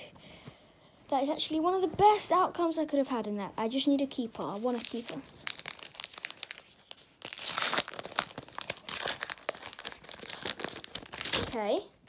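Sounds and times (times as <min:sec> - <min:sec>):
foil wrapper tearing and crinkling: 0:04.6 - 0:11.7.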